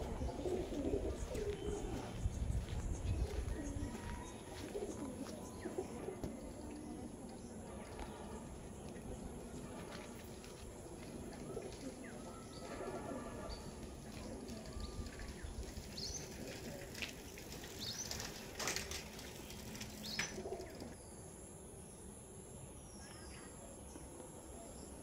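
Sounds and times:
birds chirping: 0.0 - 22.1
clicks and rustles: 14.1 - 21.0.

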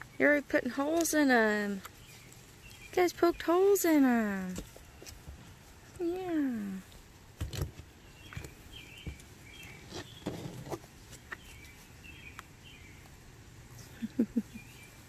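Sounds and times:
puppies rustling in dry grass: 0.0 - 15.0
bird chirps: 7.8 - 10.6, 11.3 - 13.2, 13.8 - 15.0.

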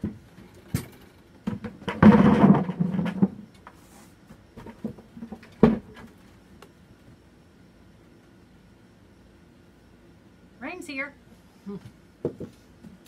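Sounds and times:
potatoes tumbling into plastic bucket: 1.5 - 3.5.

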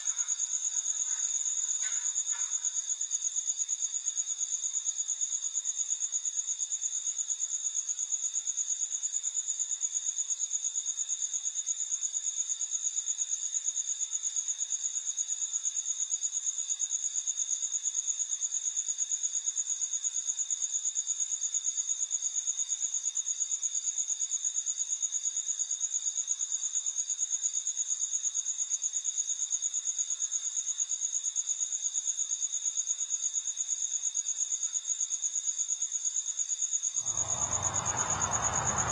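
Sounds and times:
crickets trilling: 37.0 - 38.9.

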